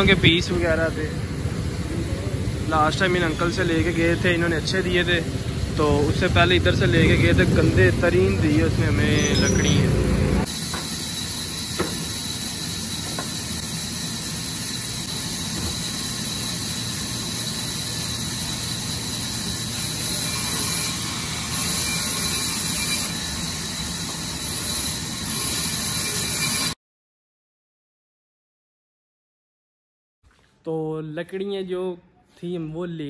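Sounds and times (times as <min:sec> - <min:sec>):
band saw cutting wood: 0:03.2 - 0:26.8.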